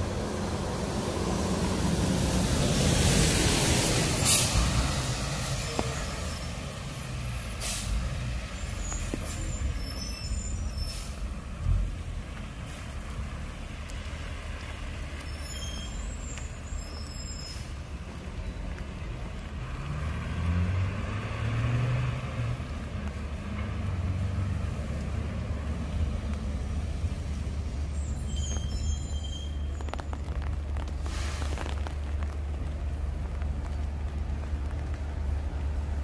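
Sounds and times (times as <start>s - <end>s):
vehicle engine on wet road: 0.0s - 36.0s.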